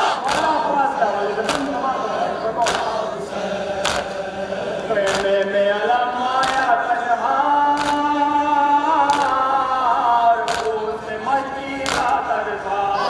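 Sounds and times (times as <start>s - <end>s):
men chanting a lament: 0.0s - 13.0s
chest-beating slaps: 0.2s - 0.5s, 1.4s - 1.7s, 2.6s - 2.9s, 3.8s - 4.2s, 5.1s - 5.4s, 6.4s - 6.7s, 7.8s - 8.1s, 9.1s - 9.4s, 10.5s - 10.8s, 11.8s - 12.2s.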